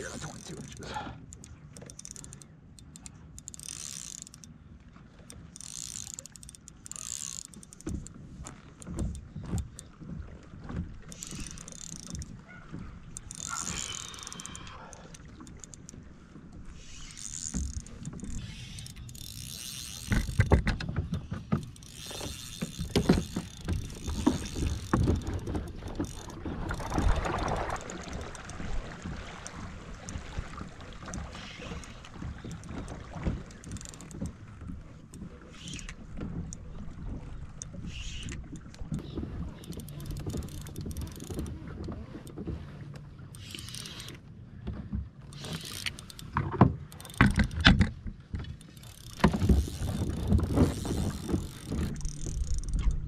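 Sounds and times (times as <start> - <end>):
fishing reel cranking: 0.0 - 4.6, 5.2 - 9.9, 11.1 - 12.4, 13.1 - 16.0, 16.7 - 34.4, 35.1 - 36.6, 37.5 - 42.4, 43.3 - 44.3, 45.2 - 47.9, 48.5 - 53.0.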